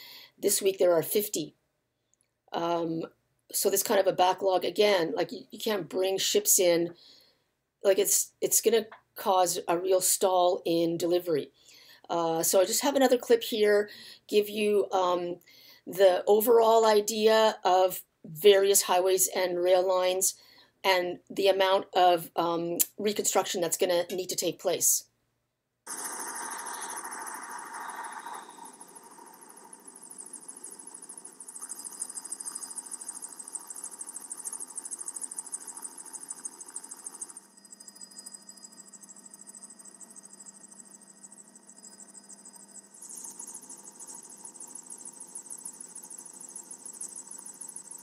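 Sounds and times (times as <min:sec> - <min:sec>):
helicopter engine and rotor: 0:25.9 - 0:48.0.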